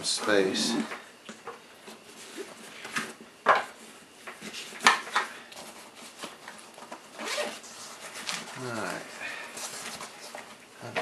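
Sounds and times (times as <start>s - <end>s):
nylon backpack being rummaged: 7.2s - 7.6s.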